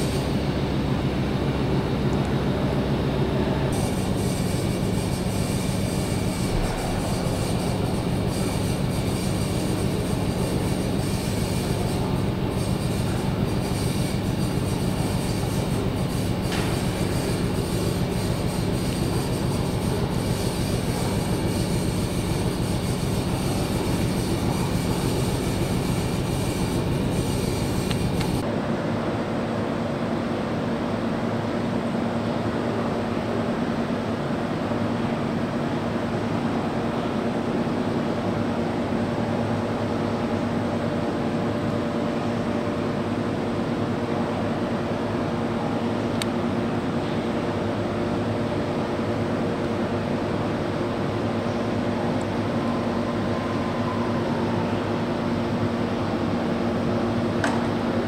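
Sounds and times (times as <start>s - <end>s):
machinery running: 0.0s - 28.4s.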